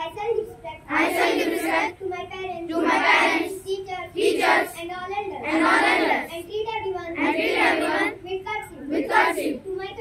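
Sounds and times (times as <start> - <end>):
boy speaking through microphone: 0.0 - 0.9, 1.9 - 5.6, 6.2 - 8.9, 9.5 - 10.0.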